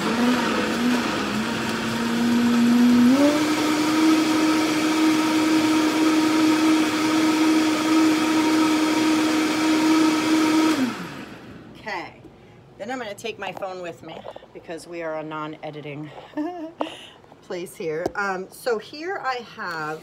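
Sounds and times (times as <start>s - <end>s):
blender running: 0.0s - 11.6s.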